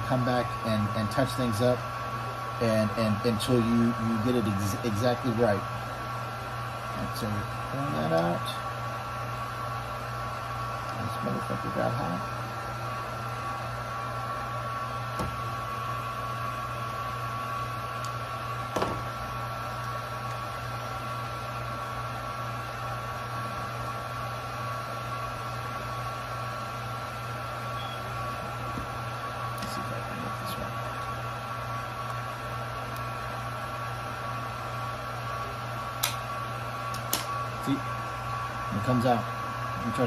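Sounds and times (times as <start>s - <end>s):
hot-air blower whirring: 0.0s - 40.0s
sharp click: 36.0s - 36.2s, 36.9s - 37.3s.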